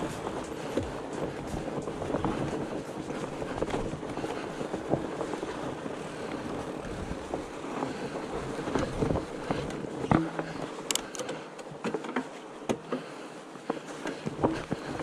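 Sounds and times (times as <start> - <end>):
wide tyres rolling: 0.0 - 11.5
bike rattling clicks and knocks: 0.0 - 15.0.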